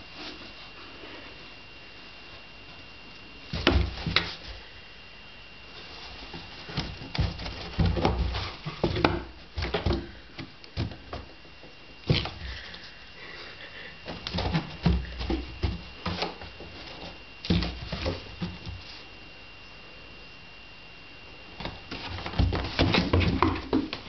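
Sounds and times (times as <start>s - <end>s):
thumps in cardboard box: 3.5s - 4.4s, 6.4s - 11.4s, 21.6s - 24.0s
paws scratching cardboard: 5.7s - 11.4s, 13.4s - 19.1s, 21.6s - 24.0s.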